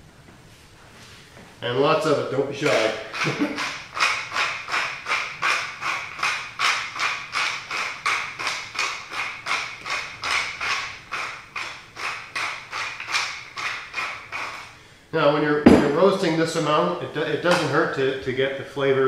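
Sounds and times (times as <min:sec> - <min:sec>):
pepper mill grinding: 0:02.6 - 0:14.8.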